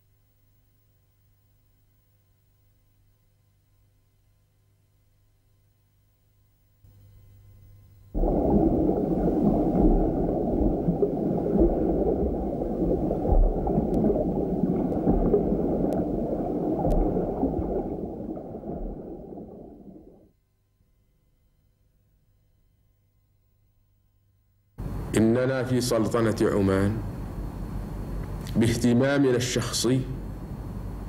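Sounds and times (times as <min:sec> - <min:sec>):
muffled underwater rushing: 0:08.2 - 0:20.3.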